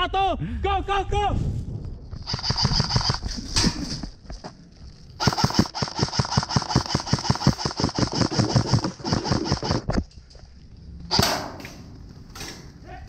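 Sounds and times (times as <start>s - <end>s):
airsoft rifle full-auto firing: 5.2s - 8.9s.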